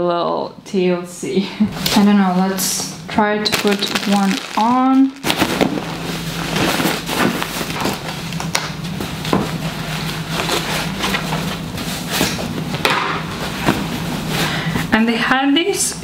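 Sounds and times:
low steady hum: 0:00.0 - 0:16.0
fabric rustling and flapping: 0:03.5 - 0:14.5.

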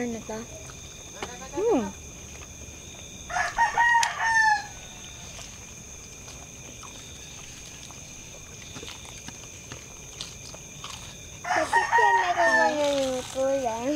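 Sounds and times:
rooster crowing: 0:03.2 - 0:05.4, 0:11.4 - 0:13.0.

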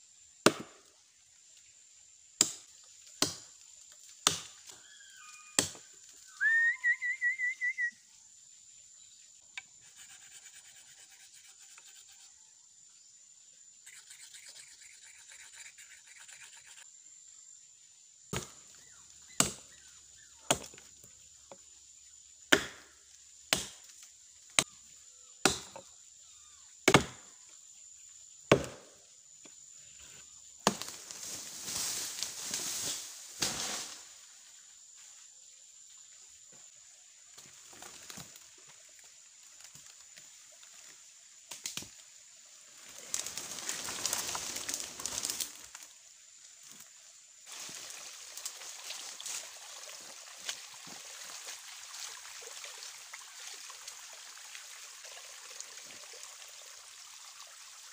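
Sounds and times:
chopping into log: 0:00.4 - 0:00.8, 0:02.4 - 0:03.5, 0:04.2 - 0:04.7, 0:05.6 - 0:05.8, 0:18.3 - 0:18.6, 0:19.3 - 0:19.7, 0:20.5 - 0:20.9, 0:22.5 - 0:22.9, 0:23.5 - 0:23.9, 0:25.4 - 0:25.9, 0:26.8 - 0:27.3, 0:28.5 - 0:29.0, 0:30.6 - 0:31.0
rustling crackling noise: 0:42.9 - 0:45.8.

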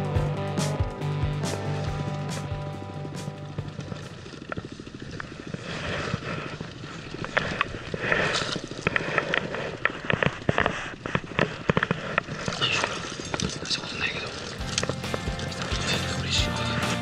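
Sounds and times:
fishing reel ticking: 0:01.4 - 0:16.8.

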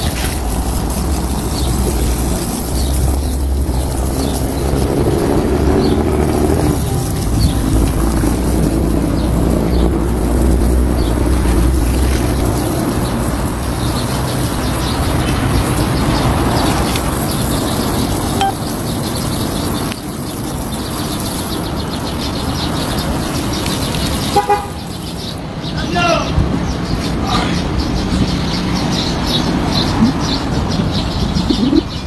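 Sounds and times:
hose nozzle spraying water: 0:00.0 - 0:25.4
low rumble: 0:00.5 - 0:13.4.

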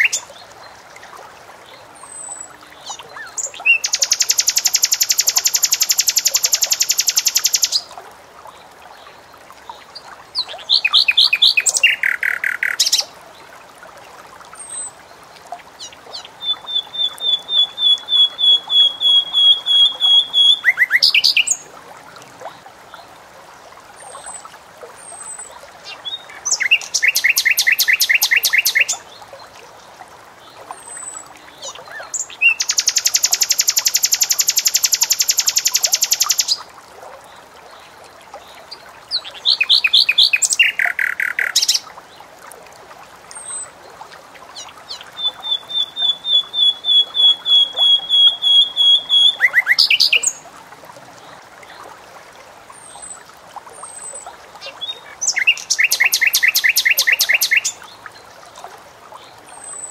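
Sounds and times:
nightingale singing: 0:03.2 - 0:07.8, 0:10.4 - 0:13.1, 0:16.2 - 0:21.6, 0:26.0 - 0:29.0, 0:32.0 - 0:36.6, 0:39.1 - 0:41.8, 0:44.9 - 0:50.4, 0:54.6 - 0:57.8.

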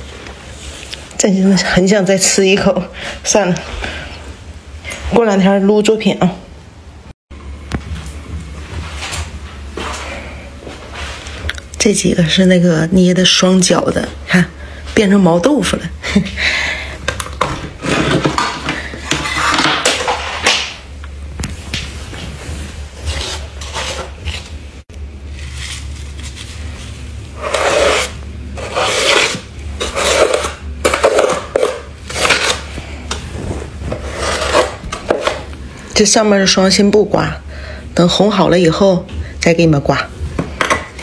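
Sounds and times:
steady low hum: 0:06.2 - 0:41.0
hand scraping frost: 0:27.4 - 0:30.5.

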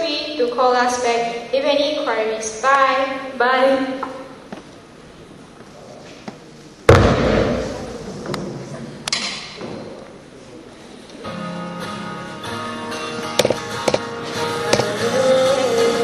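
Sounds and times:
loud thump: 0:06.9 - 0:08.8
background music with steady tones: 0:11.3 - 0:16.0.

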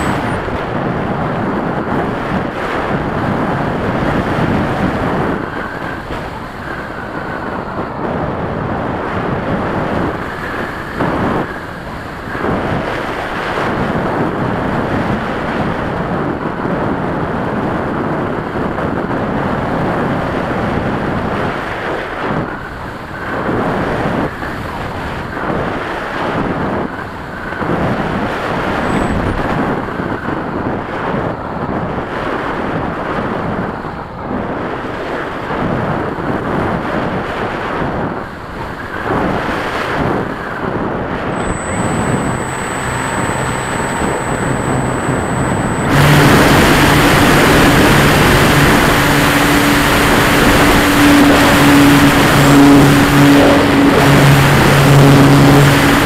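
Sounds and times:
thin high whine: 0:00.0 - 0:16.0, 0:38.2 - 0:56.0
wind and motor noise: 0:00.0 - 0:56.0.

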